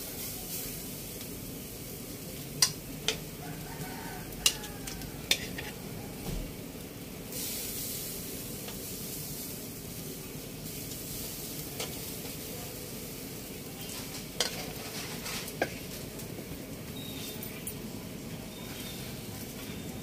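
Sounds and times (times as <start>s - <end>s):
fish sizzling on a grill: 0.0s - 20.0s
metal tongs clicking on grate: 2.6s - 3.3s, 4.4s - 5.8s.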